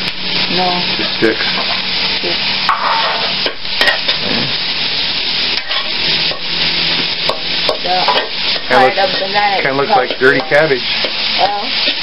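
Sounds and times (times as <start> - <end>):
vegetables sizzling in a wok: 0.0 - 12.0
metal spatula stirring: 5.6 - 6.5, 7.3 - 12.0.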